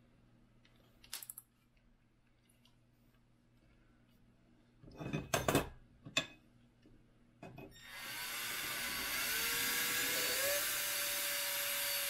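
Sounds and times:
cordless drill whining: 0:07.8 - 0:12.0.

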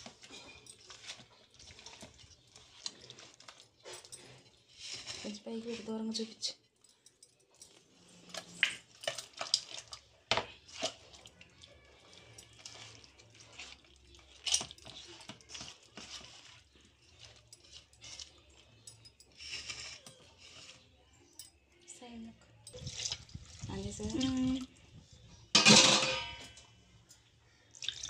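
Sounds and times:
wet squelching: 0:08.6 - 0:18.7, 0:27.7 - 0:28.0
clicks and knocks against metal pot: 0:25.5 - 0:26.7.

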